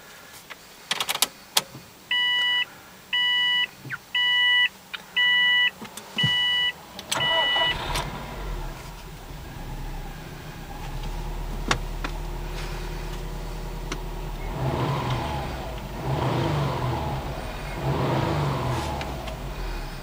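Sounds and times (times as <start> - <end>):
car warning chime beeping: 2.1 - 10.7
car engine idling: 2.9 - 20.0
car starter cranking: 5.3 - 20.0
clicks: 13.0 - 15.9.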